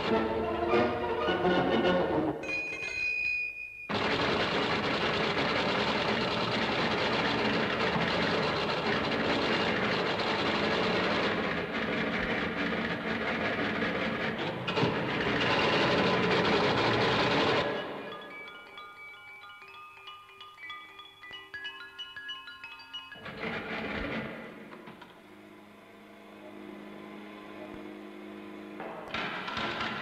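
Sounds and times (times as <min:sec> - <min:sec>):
steady high tone: 0:00.0 - 0:03.9, 0:17.6 - 0:28.7
mechanical rattling noise: 0:22.9 - 0:25.1.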